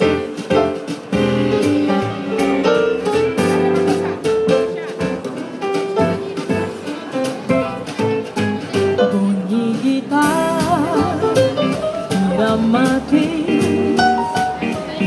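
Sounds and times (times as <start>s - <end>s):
upbeat keyboard backing with beat: 0.0s - 15.0s
woman singing into microphone: 9.1s - 11.5s, 12.1s - 14.2s.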